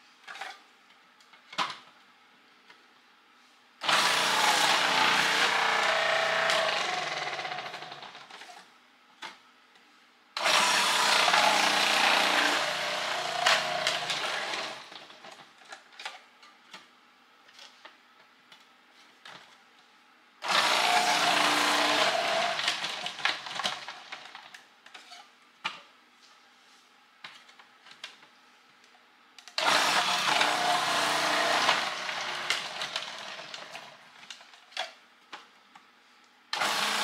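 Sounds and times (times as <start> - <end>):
food processor shredding: 3.8 - 8.6, 10.4 - 15.5, 20.4 - 24.6, 29.5 - 34.6, 36.5 - 37.0.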